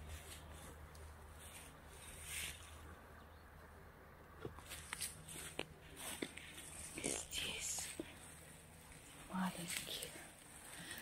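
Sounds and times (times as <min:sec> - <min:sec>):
footsteps in grass: 0:00.0 - 0:02.9, 0:04.5 - 0:11.0.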